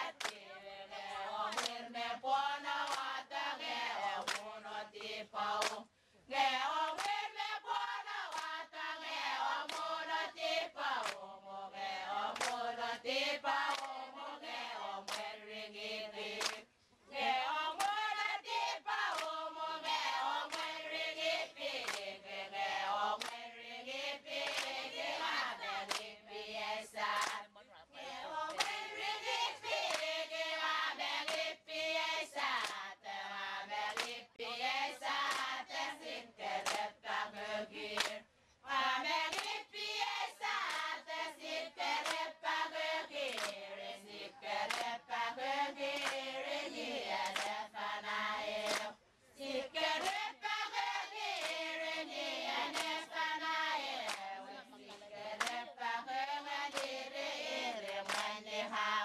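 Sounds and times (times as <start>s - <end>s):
hand claps: 0.0s - 0.4s, 1.5s - 1.8s, 2.8s - 3.2s, 4.1s - 5.9s, 7.0s - 7.2s, 8.3s - 8.6s, 9.6s - 9.9s, 10.9s - 11.3s, 12.3s - 12.7s, 13.5s - 14.1s, 15.0s - 15.3s, 16.4s - 16.7s, 17.8s - 20.8s, 21.7s - 22.2s, 23.2s - 23.4s, 24.4s - 26.2s, 27.0s - 27.5s, 28.4s - 30.1s, 31.2s - 31.5s, 32.4s - 32.8s, 33.9s - 34.2s, 35.0s - 35.6s, 36.6s - 36.9s, 37.9s - 38.2s, 39.2s - 39.6s, 40.5s - 41.0s, 41.9s - 42.3s, 43.2s - 43.7s, 44.6s - 45.0s, 45.9s - 47.6s, 48.6s - 49.0s, 50.0s - 50.2s, 51.4s - 51.7s, 52.6s - 53.1s, 54.0s - 55.6s, 56.7s - 58.4s
group of voices chanting: 0.0s - 59.0s.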